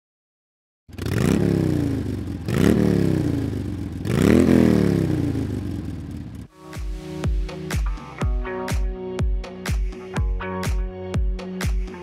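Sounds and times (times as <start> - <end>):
motorcycle engine revving: 0.9 - 6.5.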